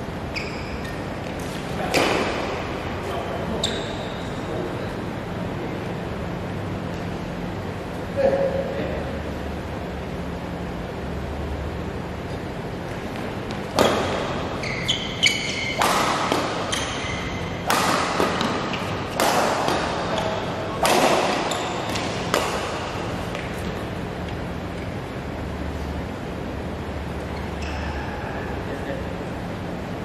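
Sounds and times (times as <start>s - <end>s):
shoes squeaking on floor: 0.3s - 1.8s, 3.5s - 4.3s, 13.4s - 17.6s, 21.2s - 22.3s, 27.3s - 28.0s
racket striking shuttlecock: 1.4s - 2.7s, 13.1s - 24.4s.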